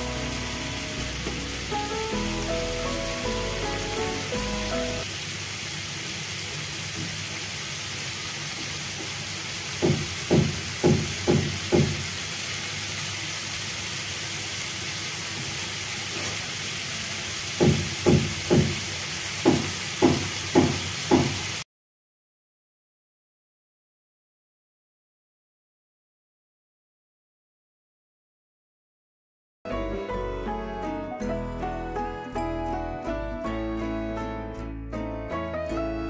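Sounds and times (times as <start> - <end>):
music: 0.0 - 5.0, 29.7 - 36.0
onions sizzling in a frying pan: 0.0 - 21.6.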